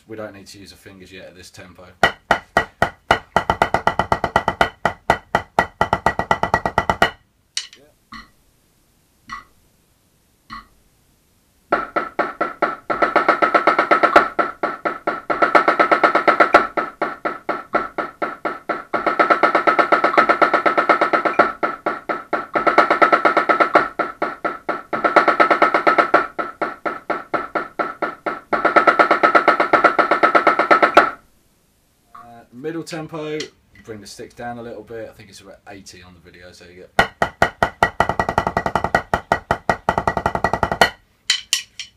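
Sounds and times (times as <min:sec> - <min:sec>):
snare drum rudiments: 0:02.0 - 0:07.7, 0:11.7 - 0:31.2, 0:37.0 - 0:41.7
drumstick clicks: 0:07.6 - 0:08.4, 0:09.3 - 0:09.6.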